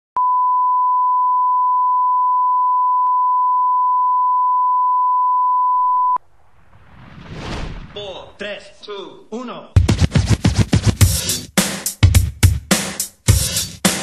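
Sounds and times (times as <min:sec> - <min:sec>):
pure test tone beep: 0:00.2 - 0:06.2.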